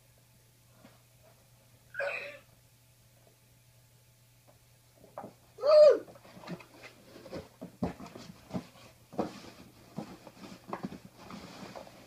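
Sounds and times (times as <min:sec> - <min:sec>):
cardboard box knocks and rustles: 0:07.2 - 0:12.0.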